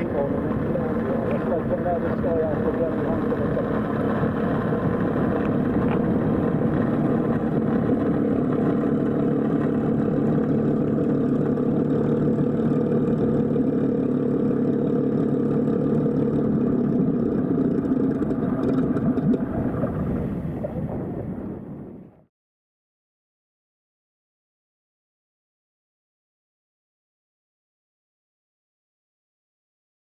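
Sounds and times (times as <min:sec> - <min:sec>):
model plane electric motor and propeller: 0:00.0 - 0:19.1.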